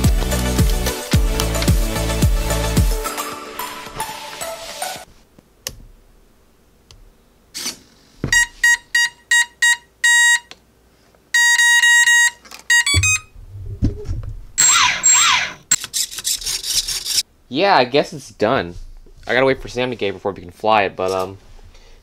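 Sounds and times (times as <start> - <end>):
electronic beeps: 11.4 - 13.3
whirring with sliding pitch: 14.6 - 15.8.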